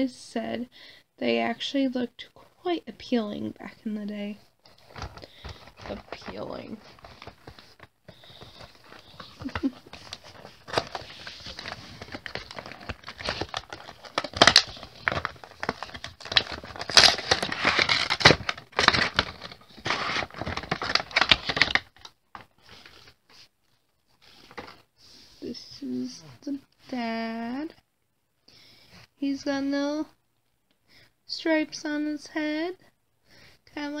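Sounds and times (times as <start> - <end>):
packaging crinkling and tearing: 4.6 - 23.2.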